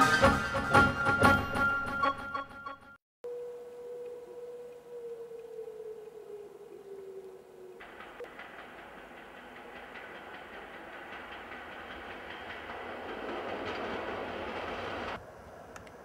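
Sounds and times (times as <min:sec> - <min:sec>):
diesel locomotive engine running: 0:07.8 - 0:16.0
wheels clicking over rails: 0:07.8 - 0:16.0.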